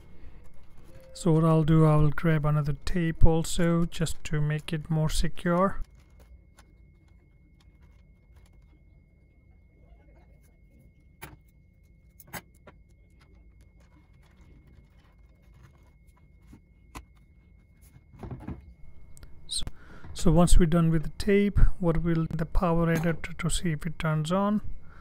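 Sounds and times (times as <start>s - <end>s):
low steady hum: 0.0s - 25.0s.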